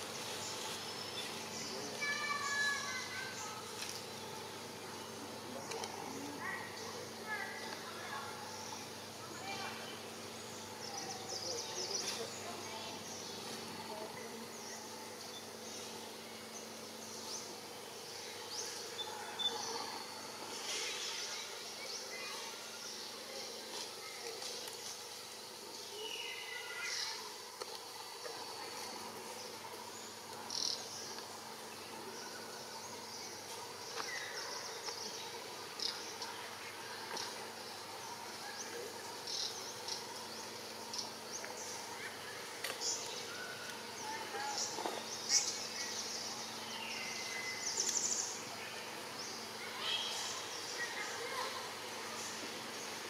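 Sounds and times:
insect drone: 0.0s - 53.0s
outdoor background noise: 0.0s - 53.0s.

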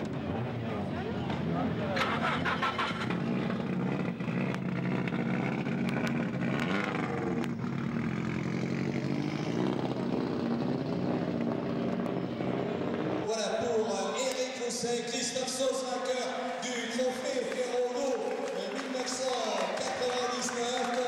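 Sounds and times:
rally car engine revving: 0.0s - 13.6s.

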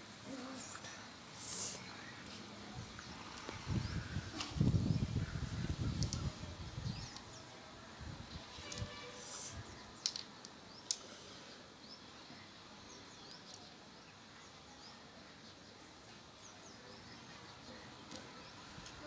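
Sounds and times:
faint steady hiss: 0.0s - 4.9s.

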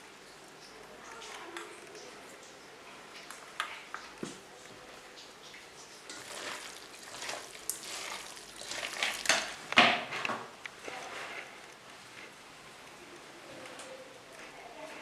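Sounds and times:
hand squishing minced meat in bowl: 6.2s - 9.8s.

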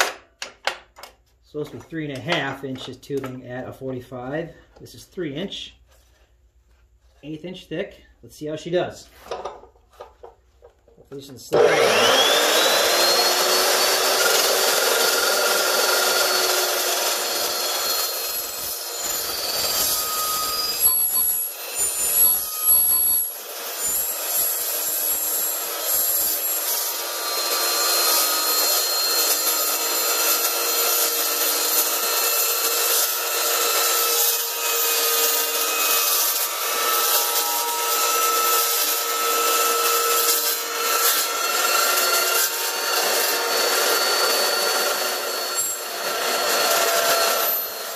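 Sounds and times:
chop saw cutting metal tubing: 11.2s - 47.9s.

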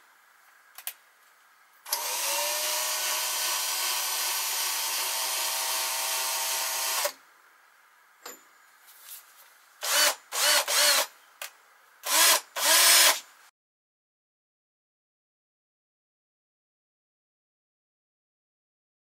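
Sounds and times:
cordless drill motor running: 1.9s - 7.2s, 9.8s - 11.1s, 12.0s - 13.2s.

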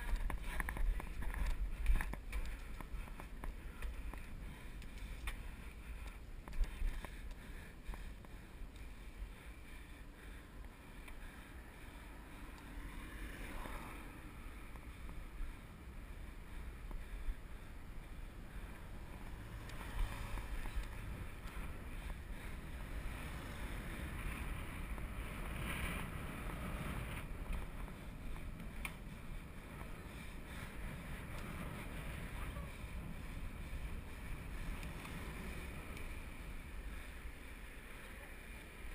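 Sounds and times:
road rumble: 0.0s - 38.9s
car passing: 7.0s - 38.9s.

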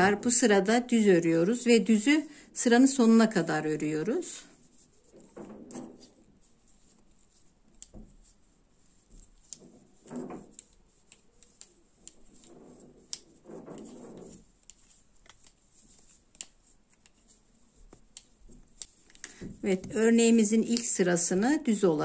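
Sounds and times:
yarn rubbing: 0.0s - 22.0s
knitting needles clicking: 7.7s - 8.2s, 9.1s - 21.1s.

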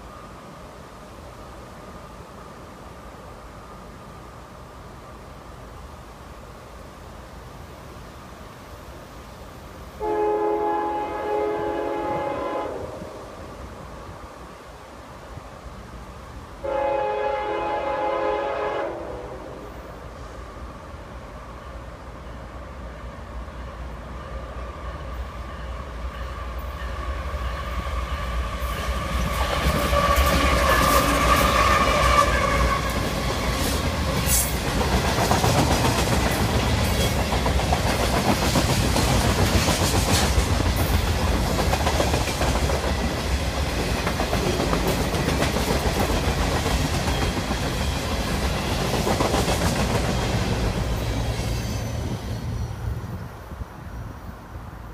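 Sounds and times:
diesel locomotive approaching: 0.0s - 54.9s
train wheels clattering on rails: 25.0s - 52.8s.

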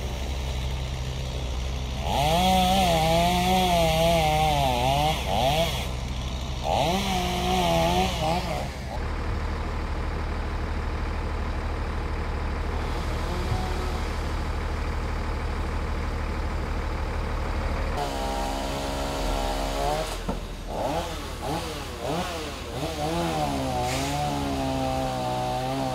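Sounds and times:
engine revving: 0.0s - 9.3s, 12.6s - 15.8s, 17.3s - 25.9s
pitched engine tone: 0.0s - 24.7s
engine idling: 0.0s - 25.8s.

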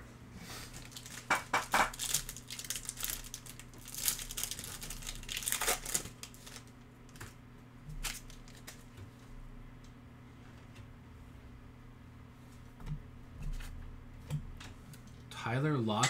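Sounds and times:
foil wrapper crinkling and tearing: 0.7s - 8.9s.

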